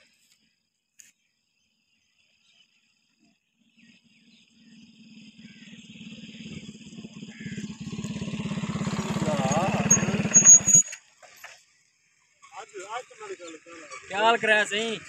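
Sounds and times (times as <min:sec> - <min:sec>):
motorcycle engine approaching: 0:03.6 - 0:12.2.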